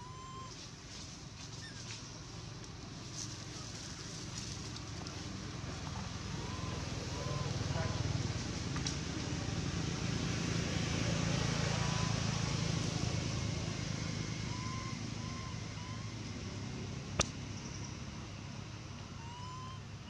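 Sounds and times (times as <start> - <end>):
outdoor background rumble: 0.0 - 20.0
sharp click: 17.2 - 17.4.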